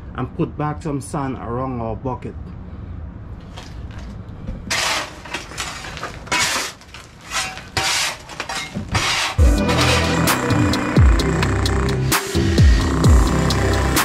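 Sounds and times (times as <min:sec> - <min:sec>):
shovel scraping concrete floor: 0:04.7 - 0:10.6.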